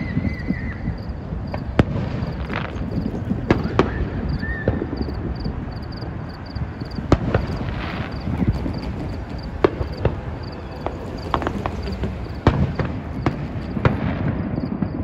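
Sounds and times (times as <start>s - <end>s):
distant fireworks bangs: 0.0s - 15.0s.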